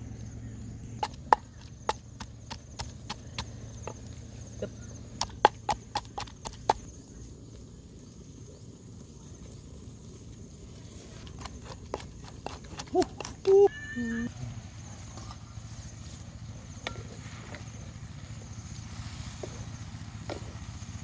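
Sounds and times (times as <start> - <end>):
wooden pestle pounding in mortar: 1.0 - 4.0, 5.2 - 6.9, 11.2 - 13.6.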